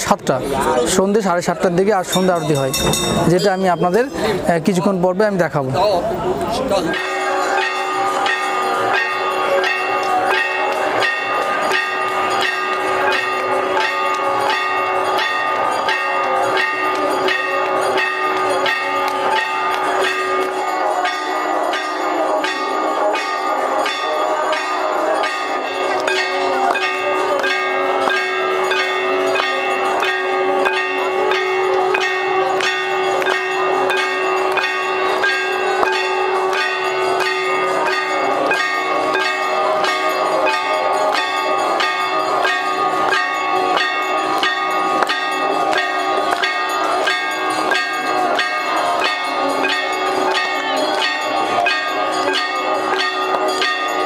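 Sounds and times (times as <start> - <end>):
brass bells rung fast: 0.0 - 6.0, 6.7 - 54.0
held tone: 2.1 - 3.8.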